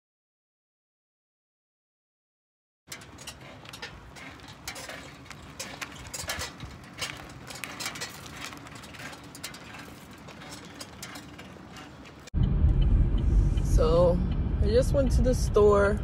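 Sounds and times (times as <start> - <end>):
bicycle squeaking and clicking: 2.9 - 12.4
low rumble of riding: 2.9 - 16.0.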